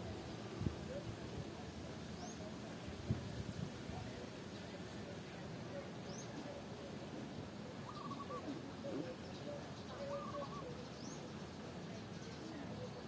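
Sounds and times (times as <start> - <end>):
steady background hiss: 0.0 - 13.0
bird calling: 7.7 - 13.0
faint bird chirps: 7.8 - 13.0.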